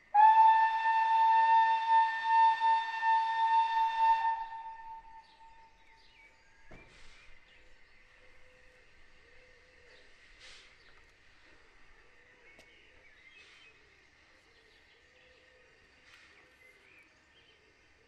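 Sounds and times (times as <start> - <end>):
steam locomotive whistle blast: 0.0 - 5.8.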